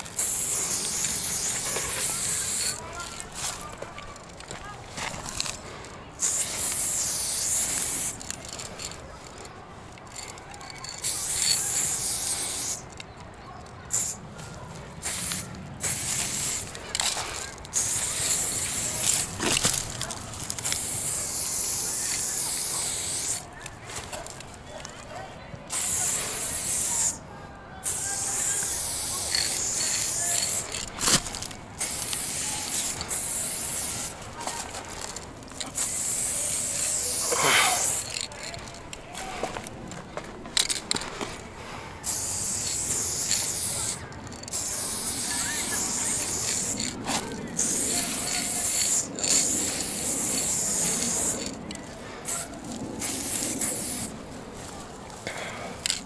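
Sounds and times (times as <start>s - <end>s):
pressure sprayer hissing bursts: 0.0s - 2.8s
spray paint hissing: 0.0s - 4.4s, 5.1s - 9.5s, 10.1s - 13.0s, 13.8s - 23.5s, 25.7s - 27.2s, 27.8s - 38.9s, 40.6s - 41.4s, 42.0s - 54.2s.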